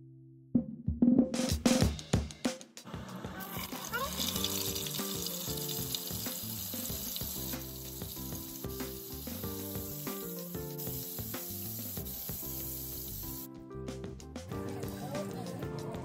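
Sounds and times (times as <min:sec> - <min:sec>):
background music: 0:00.0 - 0:16.0
butter sizzling in a hot pan: 0:03.4 - 0:13.5.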